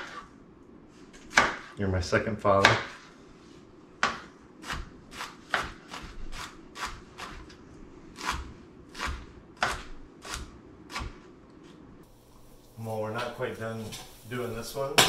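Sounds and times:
knife chopping on plastic board: 1.2 - 1.7, 2.6 - 3.0, 4.0 - 7.5, 8.2 - 11.2.

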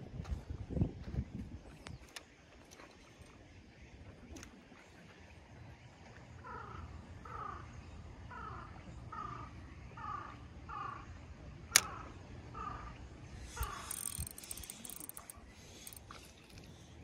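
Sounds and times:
sharp click: 11.7 - 12.0, 13.6 - 16.0.

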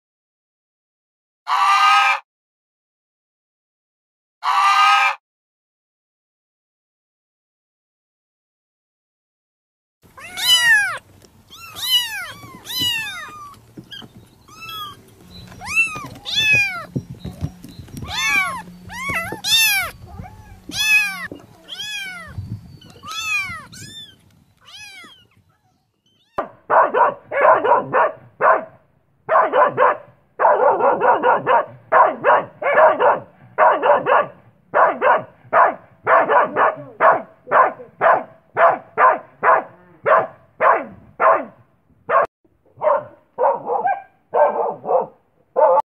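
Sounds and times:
kittens meowing: 10.1 - 26.5
dog barking: 26.4 - 45.8.

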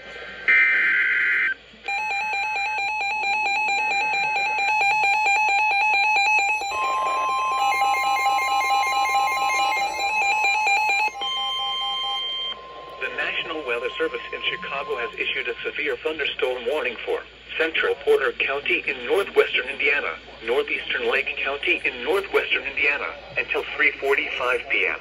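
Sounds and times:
pulsed electronic alarm beeping: 0.5 - 16.0
steady warning tone: 0.5 - 17.0
warbling data header: 3.6 - 16.7.

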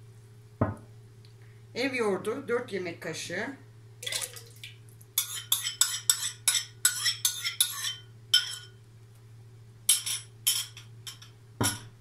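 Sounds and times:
metal spoon clinking on bowl: 5.2 - 8.8, 9.9 - 11.9.

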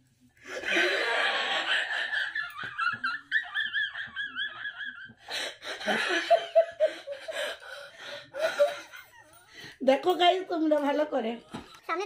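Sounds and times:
woman laughing: 0.6 - 9.4.

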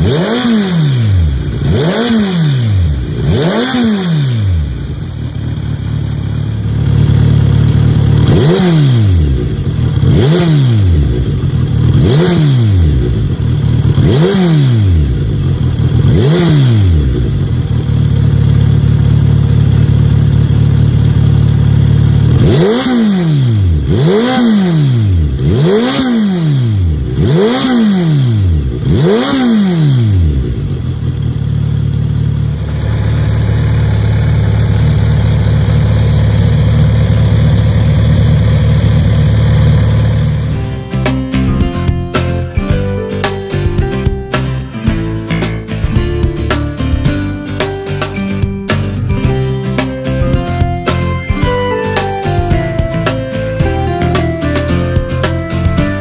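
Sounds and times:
engine throttle blips: 0.0 - 40.8
motorcycle engine idling: 0.0 - 56.0.

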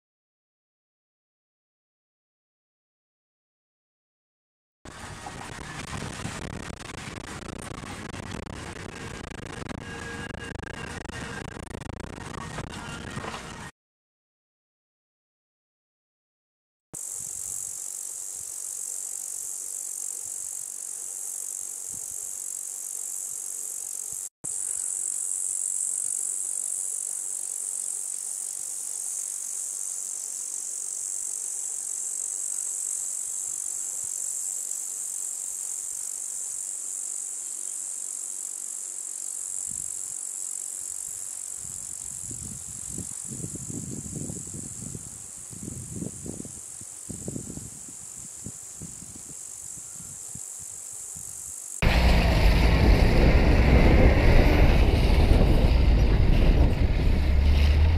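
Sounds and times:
insects droning: 17.0 - 57.3
low rumbles: 51.8 - 57.9.

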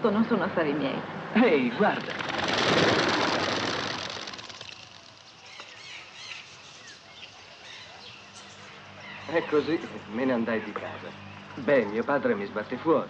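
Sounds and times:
birds flapping wings: 1.8 - 7.1
faint bird chirps: 4.6 - 12.1.

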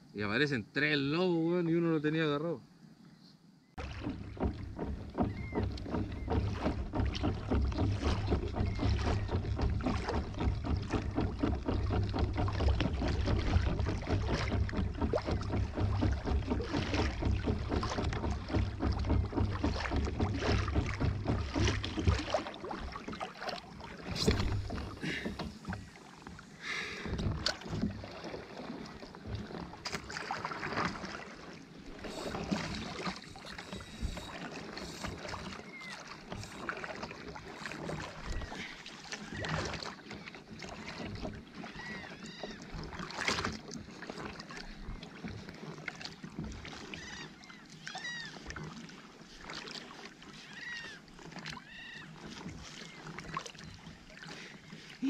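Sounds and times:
water splashing against a hull: 3.6 - 55.0
knocks: 4.0 - 22.4.

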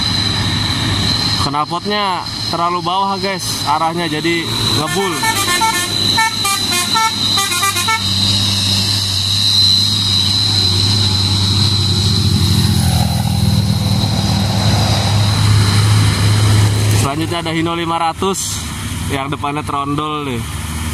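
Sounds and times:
diesel truck engine droning: 0.0 - 20.9
musical multi-tone truck horn: 4.7 - 8.5.

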